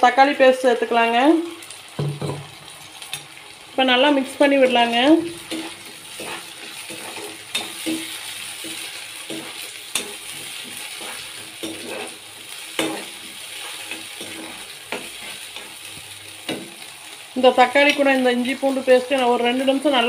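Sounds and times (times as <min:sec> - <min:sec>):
paste sizzling in oil: 0:01.0 - 0:20.0
spatula scraping a pan: 0:05.0 - 0:16.9.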